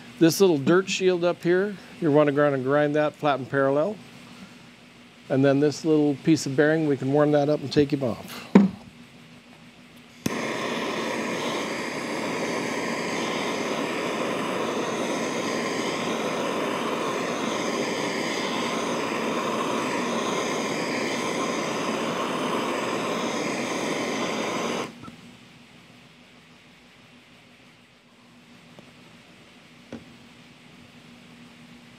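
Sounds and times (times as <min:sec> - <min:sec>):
gas torch flame hissing: 0:00.0 - 0:08.9, 0:10.0 - 0:25.2
gas torch ignition click: 0:10.0 - 0:25.2.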